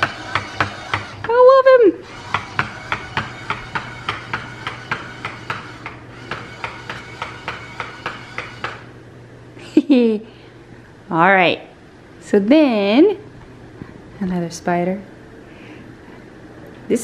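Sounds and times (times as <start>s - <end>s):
low motor hum: 0.0s - 9.5s.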